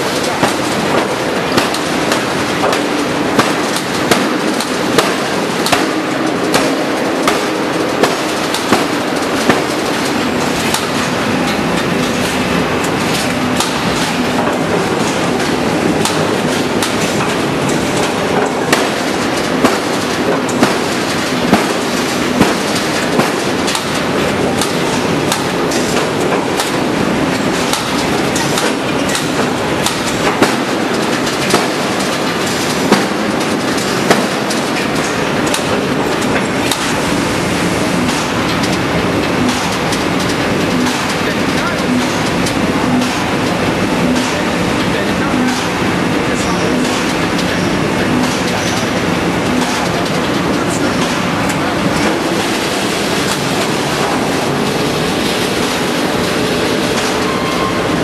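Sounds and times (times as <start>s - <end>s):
forging hammer striking steel: 0.0s - 26.9s, 27.5s - 37.0s
steady loud din: 0.0s - 27.2s.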